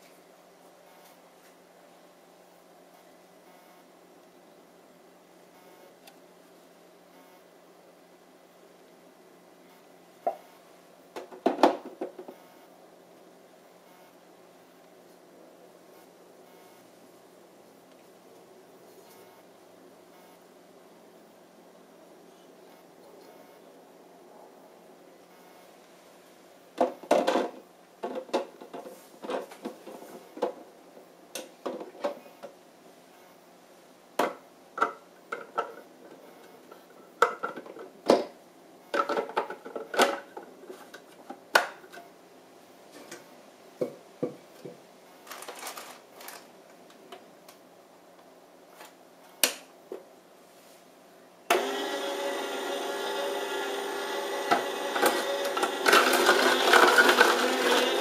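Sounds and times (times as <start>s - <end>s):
juicer motor humming: 51.5s - 58.0s.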